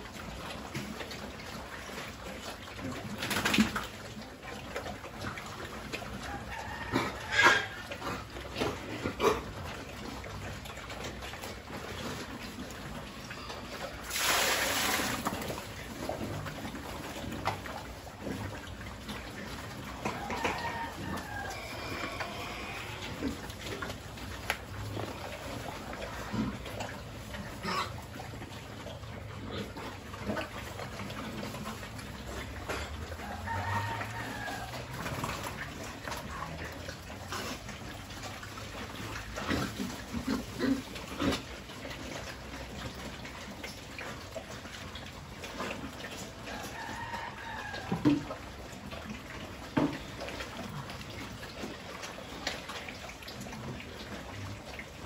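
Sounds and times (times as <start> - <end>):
pigs slurping and eating: 0.0 - 55.0
liquid splashing into trough: 13.8 - 18.2.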